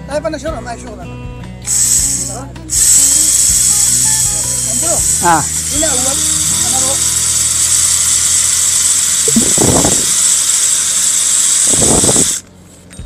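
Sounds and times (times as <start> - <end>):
loud steady hiss: 1.6 - 12.4
tanker truck running: 1.6 - 13.0.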